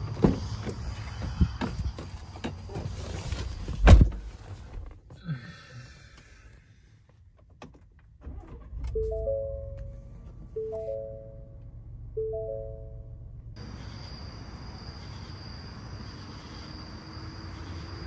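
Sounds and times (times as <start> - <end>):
engine low rumble: 0.0 - 18.0
three-note chime: 12.2 - 13.2.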